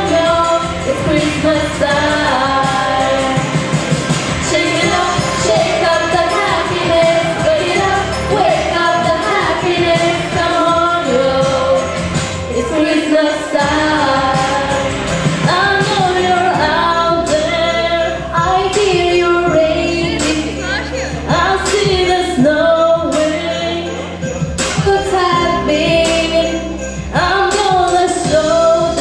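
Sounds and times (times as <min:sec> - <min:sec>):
backing track with beat: 0:00.0 - 0:29.0
girls singing pop song: 0:00.0 - 0:29.0.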